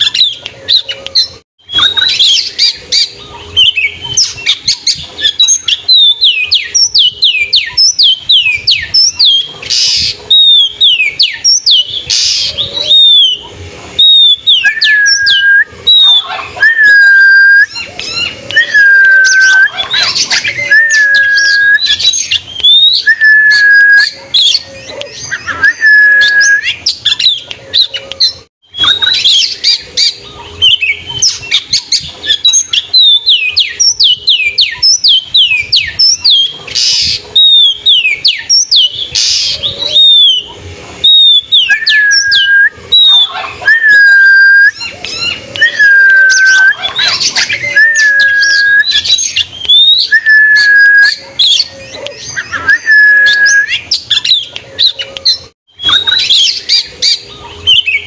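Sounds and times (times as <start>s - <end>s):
bird harsh chatter: 0.0s - 16.8s, 17.6s - 23.1s, 26.6s - 43.9s
bird whistles: 0.0s - 58.0s.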